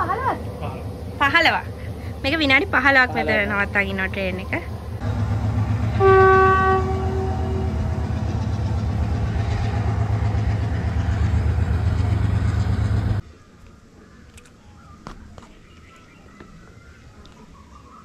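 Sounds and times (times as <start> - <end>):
train rumbling: 0.0 - 13.2
train horn: 3.6 - 13.2.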